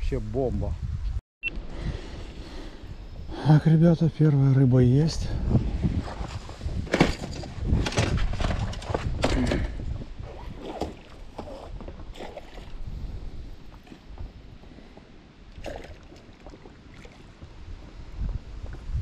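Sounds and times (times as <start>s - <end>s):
wind on microphone: 0.0s - 3.4s, 4.7s - 14.6s, 15.6s - 19.0s
water splashing at shoreline: 10.3s - 12.8s, 15.5s - 17.4s.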